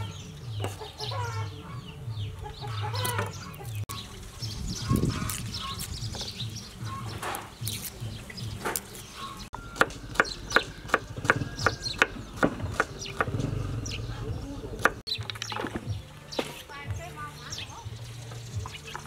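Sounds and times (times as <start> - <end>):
fingers peeling garlic skins: 4.6 - 6.3, 7.4 - 9.1.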